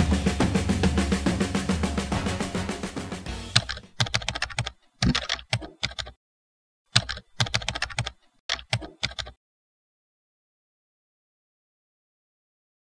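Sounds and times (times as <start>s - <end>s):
computer keyboard typing: 3.5s - 6.2s, 6.9s - 9.4s.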